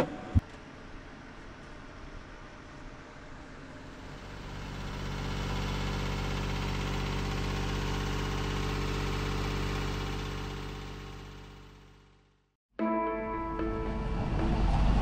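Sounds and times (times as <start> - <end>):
boat engine idling: 4.0 - 12.0.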